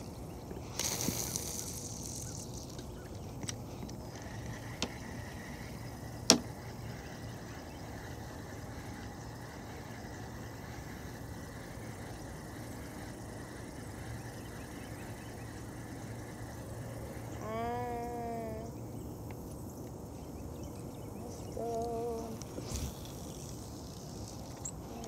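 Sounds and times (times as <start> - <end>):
short hiss: 0.7 - 2.8.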